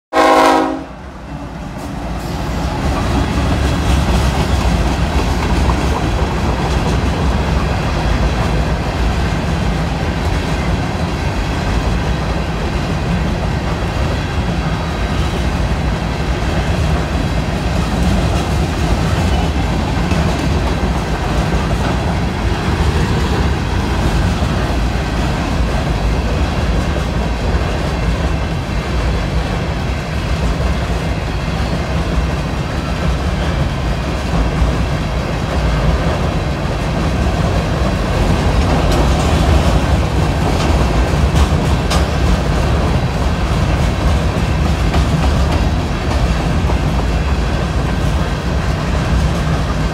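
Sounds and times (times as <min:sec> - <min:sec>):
locomotive horn: 0:00.1 - 0:01.9
freight train rolling on rails: 0:00.1 - 0:49.9.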